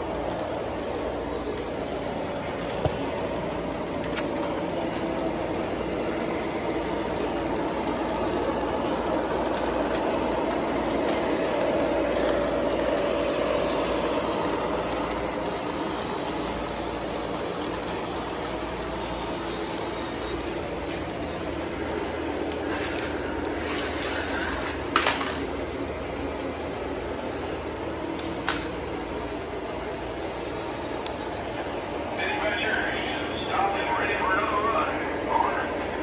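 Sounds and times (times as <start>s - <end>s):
constant whine: 0.0s - 36.0s
model trains rolling on track: 0.0s - 36.0s.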